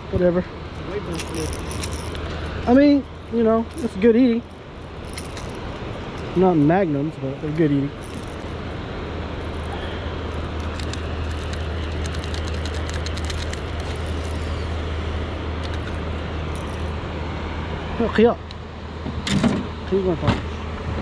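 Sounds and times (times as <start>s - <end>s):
boat motor humming: 0.0s - 18.3s
fishing lure hooks rattling: 0.8s - 6.4s, 7.9s - 8.6s, 10.3s - 14.6s, 15.6s - 16.9s.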